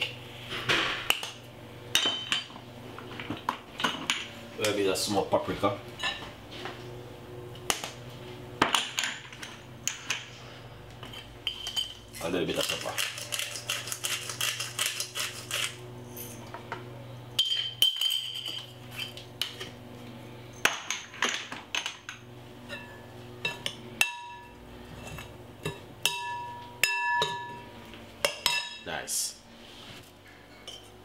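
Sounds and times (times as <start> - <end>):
metal utensils clinking on glass bowl: 11.1 - 14.6, 17.4 - 19.2.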